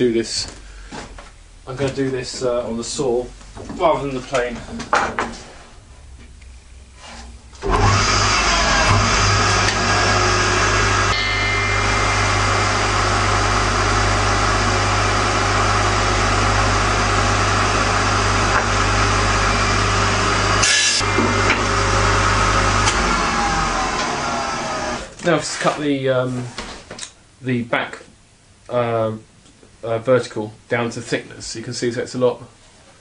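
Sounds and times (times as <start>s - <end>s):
table saw ripping wood: 7.6s - 25.1s.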